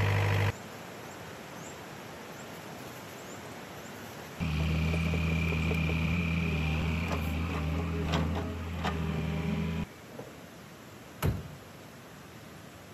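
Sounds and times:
excavator diesel engine idling: 0:00.0 - 0:00.5, 0:04.4 - 0:09.8
cab door knock: 0:04.4 - 0:06.2.

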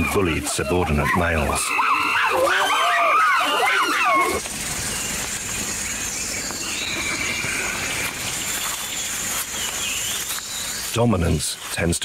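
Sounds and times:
wavering animal call: 0:00.0 - 0:04.5.

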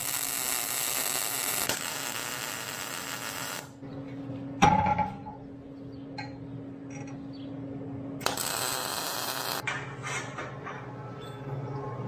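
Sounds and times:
welding arc crackling hiss: 0:00.0 - 0:03.8, 0:08.2 - 0:09.6.

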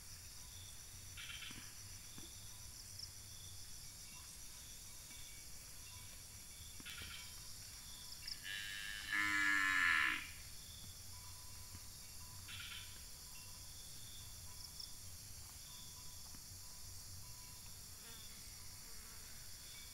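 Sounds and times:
insects buzzing and chirping: 0:00.0 - 0:19.9
cow mooing: 0:08.4 - 0:10.4.

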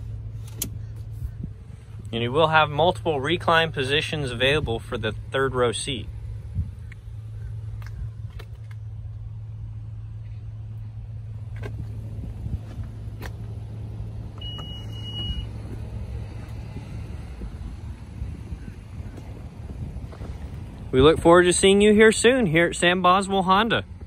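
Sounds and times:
steady low hum: 0:00.0 - 0:24.0
electronic beep: 0:14.4 - 0:15.5.

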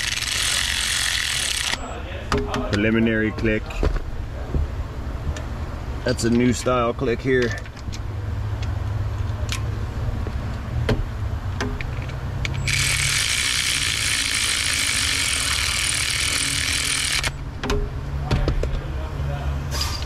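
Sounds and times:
cordless ratchet motor running: 0:00.0 - 0:01.8, 0:12.4 - 0:17.4
steady low hum: 0:00.0 - 0:20.0.

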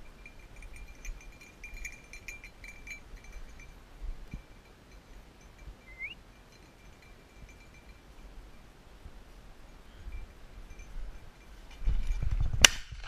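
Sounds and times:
collar bell jingling: 0:00.0 - 0:08.6, 0:09.7 - 0:12.4
short rising chirp: 0:05.8 - 0:06.2.

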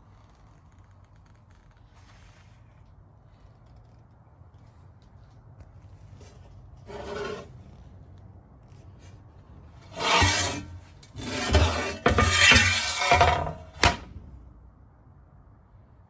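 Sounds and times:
hand scraping cast iron griddle: 0:06.9 - 0:07.5, 0:09.8 - 0:14.1.

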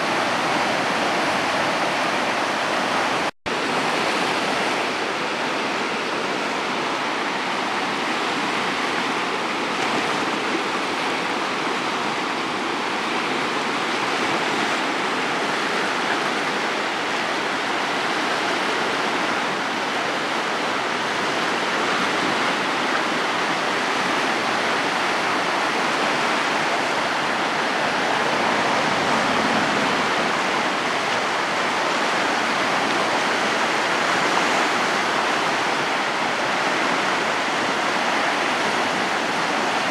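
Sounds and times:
floodwater rushing down a creek: 0:00.0 - 0:39.9.

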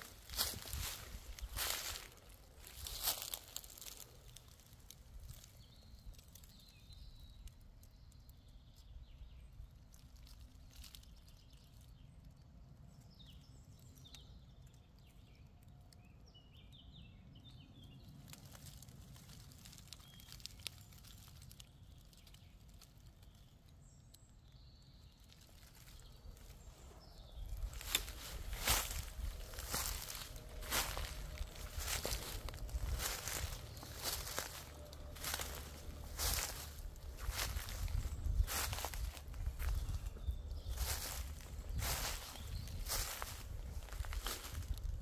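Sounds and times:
crackles on forest floor: 0:00.0 - 0:45.0
soft bird chirps: 0:00.0 - 0:45.0
low steady rumble: 0:26.5 - 0:45.0.

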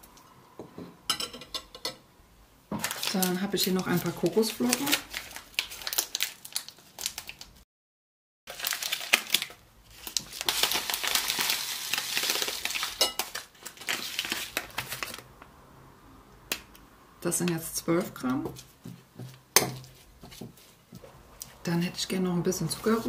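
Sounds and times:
plastic bag crinkling: 0:02.8 - 0:07.6, 0:08.5 - 0:15.3.

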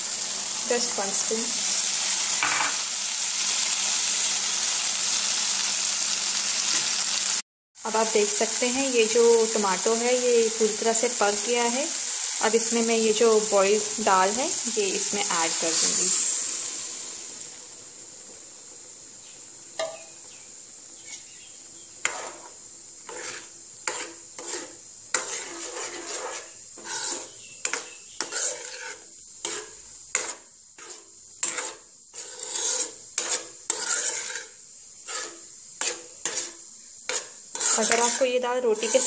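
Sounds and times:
faint steady hiss: 0:00.0 - 0:39.0
ladle scraping and knocking pan: 0:22.0 - 0:39.0.

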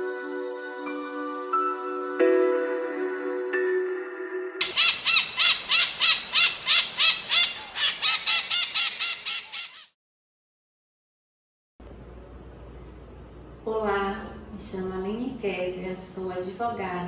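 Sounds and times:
bird squawking rapidly: 0:04.6 - 0:09.9.

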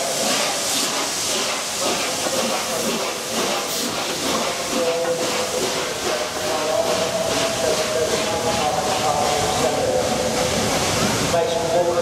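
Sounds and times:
steam locomotive hissing steam: 0:00.0 - 0:12.0.

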